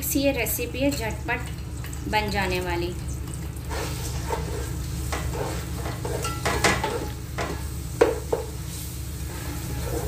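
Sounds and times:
hot oil sizzling: 0.0 - 10.0
metal spoon scraping pot: 3.7 - 7.2, 9.2 - 10.0.

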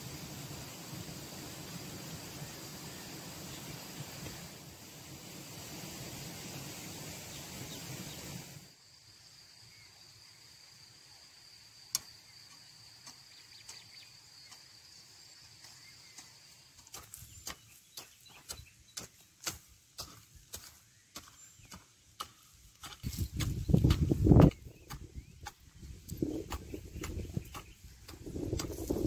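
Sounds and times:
hoe chopping into dry soil: 15.6 - 29.0.

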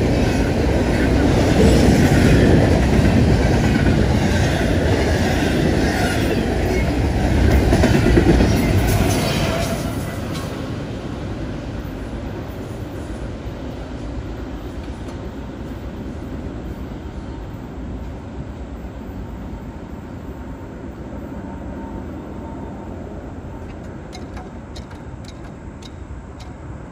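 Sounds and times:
train wheels rumbling on rails: 0.0 - 26.9
sharp ticks: 23.6 - 26.7.

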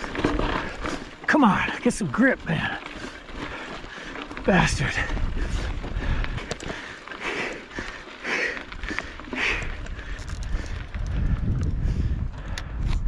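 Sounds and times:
bike clicking and rattling: 0.0 - 13.0
wind rumble on microphone: 4.4 - 6.9, 8.7 - 13.0
person breathing hard: 5.1 - 13.0.

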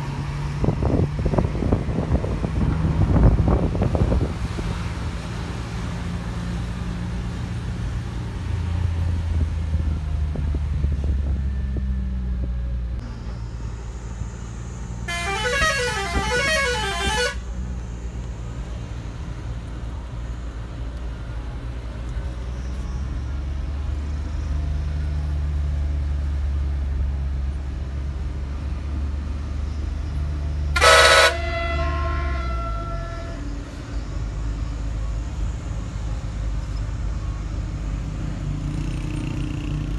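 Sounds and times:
bus engine droning: 0.0 - 39.9
loud horn blast: 15.0 - 17.6, 30.7 - 33.6
warbling horn: 15.1 - 17.5, 30.8 - 33.6.

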